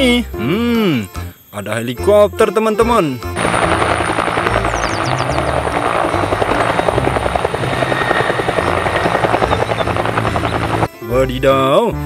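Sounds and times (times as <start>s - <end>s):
helicopter turbine noise: 3.3s - 11.2s
helicopter rotor chopping: 3.4s - 11.0s.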